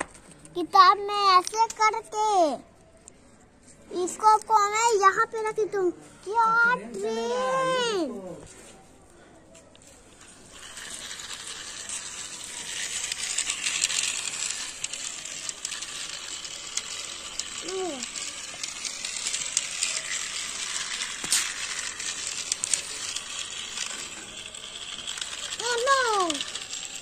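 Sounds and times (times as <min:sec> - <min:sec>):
toy train rattling on track: 0:00.0 - 0:03.2, 0:04.0 - 0:08.2, 0:09.7 - 0:27.0
small clicks: 0:09.7 - 0:27.0.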